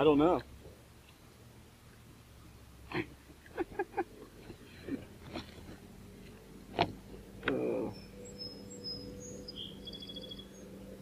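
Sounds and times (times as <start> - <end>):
scuffling rustle: 4.2 - 6.4
faint bird chirps: 7.5 - 11.0.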